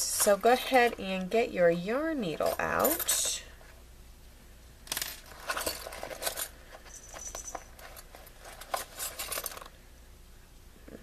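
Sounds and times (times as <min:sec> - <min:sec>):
small hard items clicking and rattling: 0:04.9 - 0:09.8.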